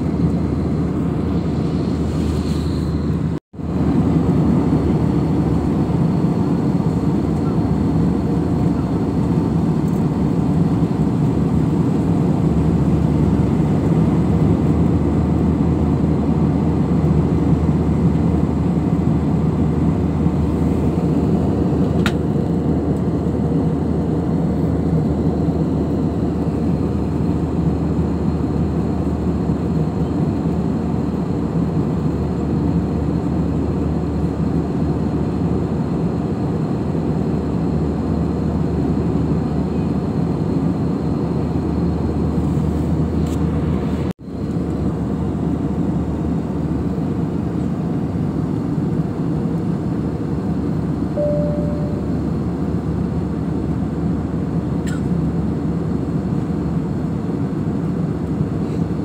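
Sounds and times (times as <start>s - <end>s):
jet engine drone and airflow: 0.0s - 59.0s
deep hum: 51.2s - 52.5s.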